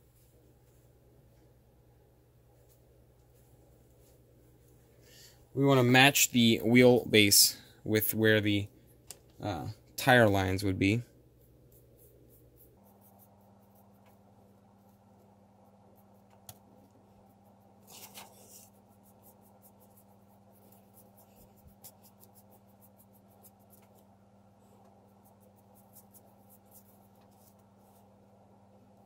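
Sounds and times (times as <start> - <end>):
low hum: 7.5 - 29.0
paintbrush scratching and tapping: 11.3 - 28.2.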